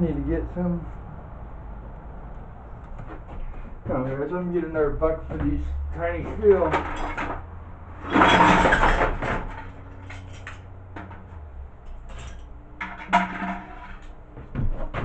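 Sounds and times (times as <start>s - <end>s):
steel scrap clattering into bucket: 6.7s - 7.4s, 8.0s - 10.6s, 12.1s - 14.1s.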